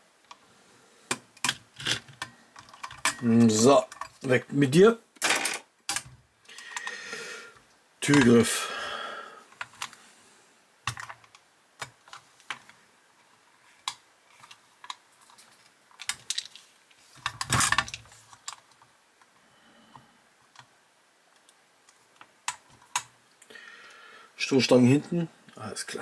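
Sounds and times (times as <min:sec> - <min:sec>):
small parts clattering: 0:01.1 - 0:04.3, 0:05.2 - 0:07.0, 0:13.7 - 0:18.9.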